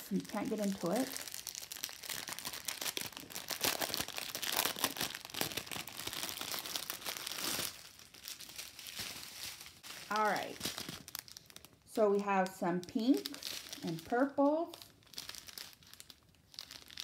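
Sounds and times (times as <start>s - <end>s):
plastic packet crinkling: 0.0s - 17.0s.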